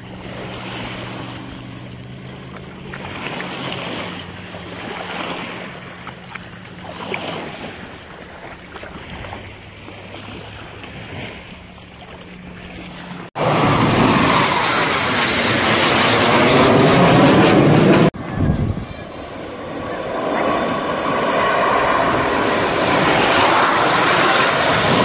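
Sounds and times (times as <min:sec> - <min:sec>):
water sloshing and splashing: 0:00.0 - 0:13.4
jet aircraft roaring overhead: 0:00.0 - 0:25.0
wind: 0:00.0 - 0:25.0.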